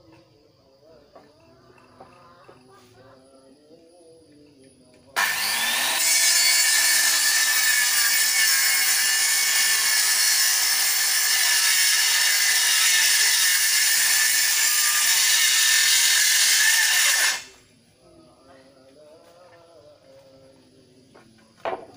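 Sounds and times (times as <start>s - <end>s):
circular saw cutting wood: 5.2s - 17.6s.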